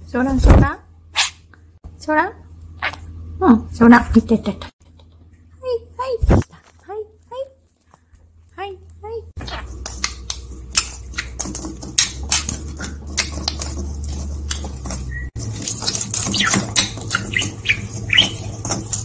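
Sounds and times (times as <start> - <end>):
budgerigar high chirps: 16.3 - 18.5.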